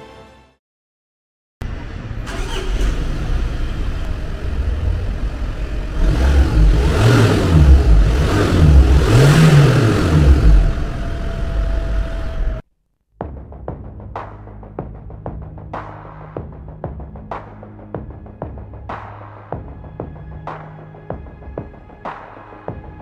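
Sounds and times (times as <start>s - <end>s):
diesel engine idling and revving: 1.6s - 12.6s.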